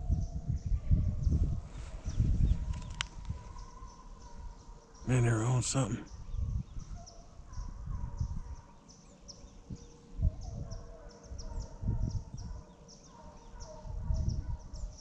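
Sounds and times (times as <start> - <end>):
high chirping of birds or insects: 0.0 - 15.0
hunting dogs baying: 2.6 - 6.0, 9.9 - 14.9.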